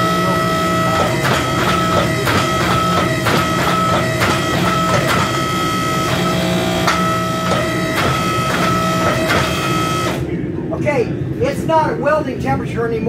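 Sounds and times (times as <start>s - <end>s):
hammer blows on hot steel: 0.0s - 10.2s
machine whine: 0.0s - 11.4s.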